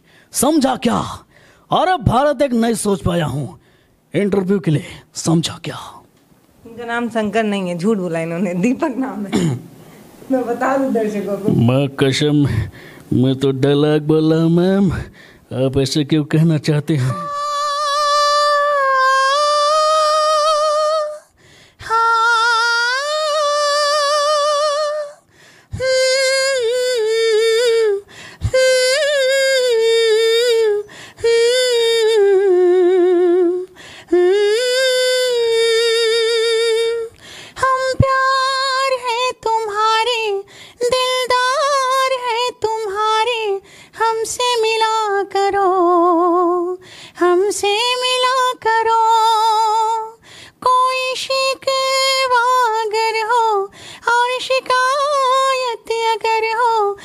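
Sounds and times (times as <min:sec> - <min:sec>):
man singing in falsetto: 0:17.0 - 0:21.3.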